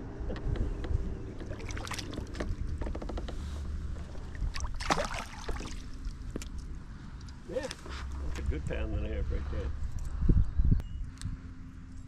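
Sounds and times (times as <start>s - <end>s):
wind rumble on microphone: 0.0s - 12.0s
fish splashing at water surface: 4.5s - 6.1s.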